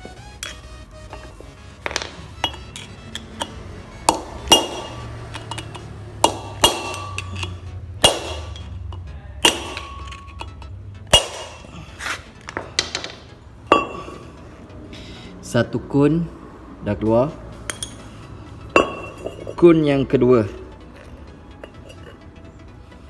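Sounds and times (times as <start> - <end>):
hammer striking metal: 1.8 - 11.7, 17.7 - 18.1, 18.8 - 19.5.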